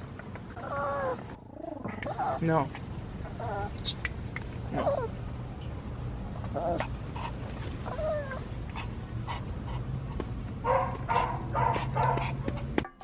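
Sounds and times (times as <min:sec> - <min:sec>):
small dog whining: 0:00.5 - 0:02.5, 0:03.2 - 0:03.9, 0:04.7 - 0:05.2, 0:06.4 - 0:07.0, 0:07.8 - 0:08.8.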